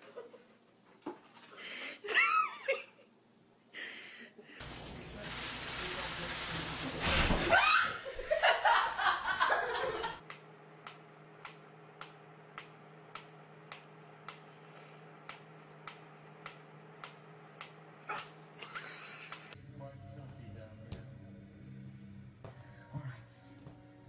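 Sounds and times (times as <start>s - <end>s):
person laughing loudly: 2.0s - 3.1s, 7.5s - 10.2s.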